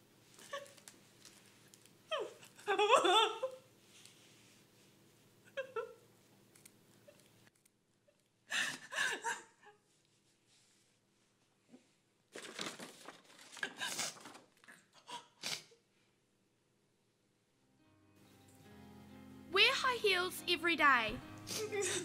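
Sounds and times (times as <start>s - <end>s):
paper crinkling and rustling: 0.3s - 2.0s, 12.3s - 14.7s.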